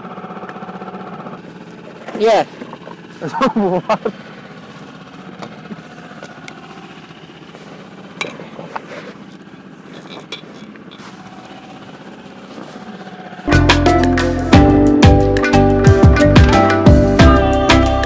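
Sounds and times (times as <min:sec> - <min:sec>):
small outboard motor running: 0:00.0 - 0:18.0
fishing gear clicks and knocks: 0:09.9 - 0:11.4.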